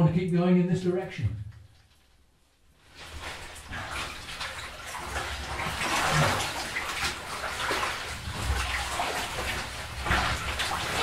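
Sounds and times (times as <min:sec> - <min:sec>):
water sloshing and splashing: 0:02.7 - 0:11.0.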